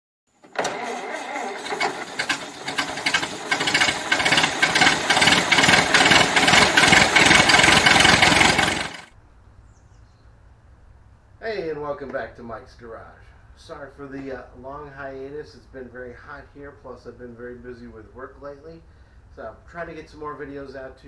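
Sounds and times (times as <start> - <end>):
engine with rapid firing pulses: 0.6 - 9.1.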